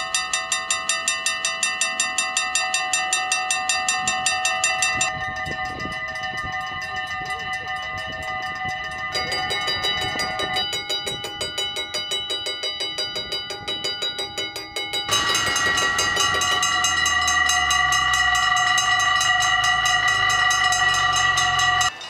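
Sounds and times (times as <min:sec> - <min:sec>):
level crossing bells ringing: 0:00.0 - 0:22.0.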